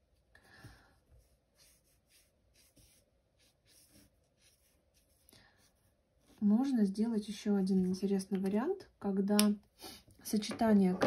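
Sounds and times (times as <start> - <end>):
marker scratching on paper: 1.2 - 6.4.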